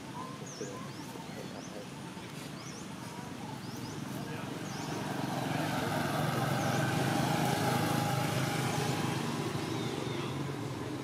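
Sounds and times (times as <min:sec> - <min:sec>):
vehicle engine passing: 0:04.0 - 0:11.0.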